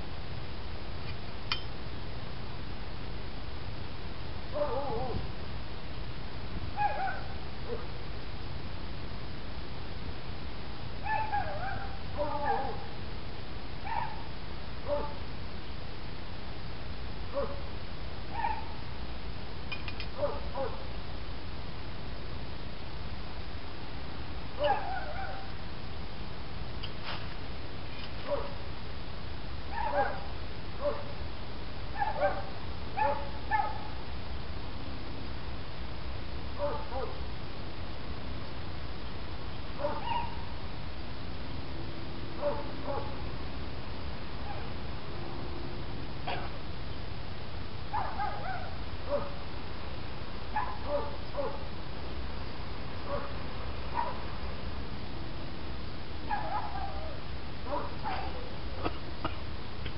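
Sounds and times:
low background noise: 0:00.0 - 0:59.9
dog yelping and barking: 0:04.6 - 0:05.2, 0:06.8 - 0:07.9, 0:11.0 - 0:12.9, 0:13.8 - 0:14.3, 0:18.3 - 0:18.8, 0:24.6 - 0:25.5, 0:29.7 - 0:31.1, 0:32.0 - 0:33.9, 0:39.8 - 0:40.5, 0:44.4 - 0:44.8, 0:46.3 - 0:46.6, 0:47.9 - 0:49.4, 0:50.6 - 0:51.6, 0:53.9 - 0:54.2, 0:56.3 - 0:58.6.

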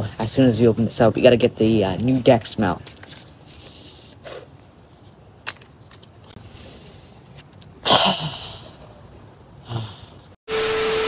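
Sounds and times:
person sniffing: 0:03.4 - 0:04.6, 0:06.3 - 0:07.3.

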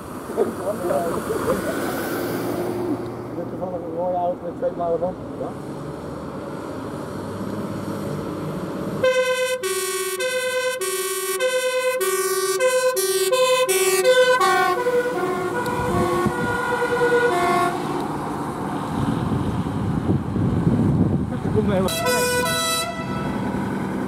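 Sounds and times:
diesel truck engine: 0:00.0 - 0:24.0
road noise: 0:00.0 - 0:24.0
two-tone fire truck siren: 0:09.0 - 0:18.0, 0:21.9 - 0:23.5.

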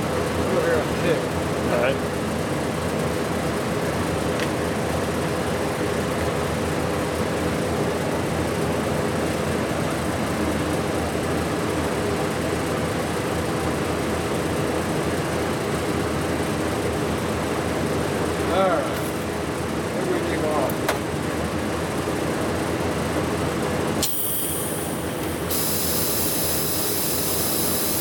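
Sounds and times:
machinery hum and hiss: 0:14.0 - 0:28.0.

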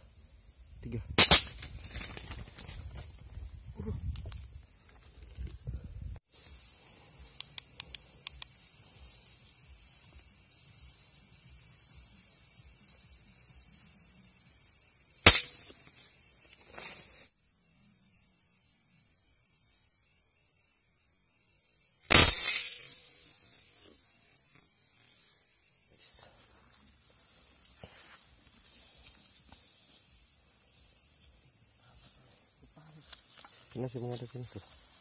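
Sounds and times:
crickets trilling: 0:00.0 - 0:35.0
rifle shot: 0:01.2 - 0:01.7, 0:15.3 - 0:15.6, 0:22.1 - 0:22.9.

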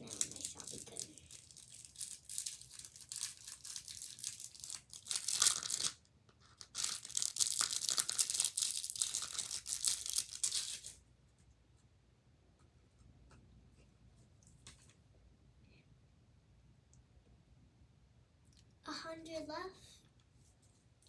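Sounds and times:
plastic wrappers crinkling: 0:00.0 - 0:06.0, 0:06.6 - 0:11.0.

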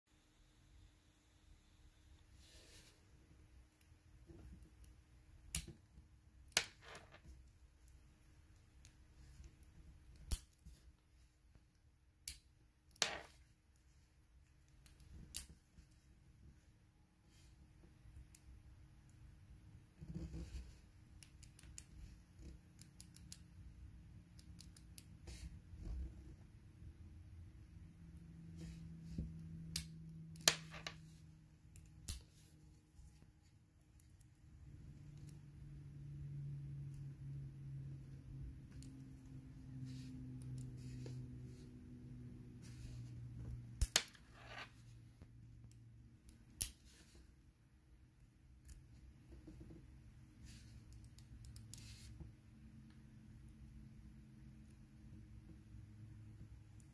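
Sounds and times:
low steady hum: 0:00.1 - 0:56.9.

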